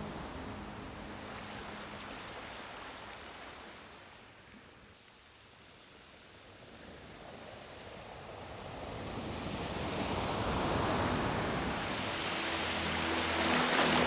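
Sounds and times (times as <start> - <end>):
steady rushing noise: 7.9 - 14.0.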